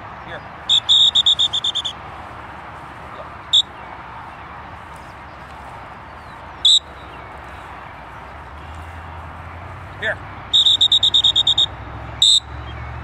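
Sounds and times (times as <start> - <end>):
dog-training whistle toots: 0.7 - 2.0, 10.5 - 12.5.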